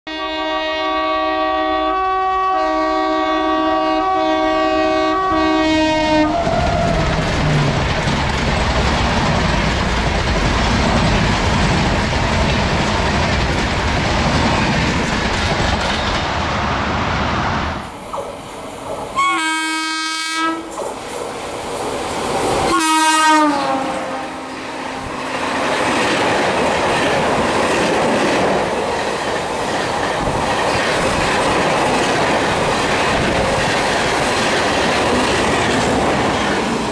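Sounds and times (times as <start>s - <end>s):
train horn blasts: 0.1s - 6.9s, 19.2s - 20.7s, 22.7s - 25.2s
train coaches clattering past: 3.0s - 36.9s.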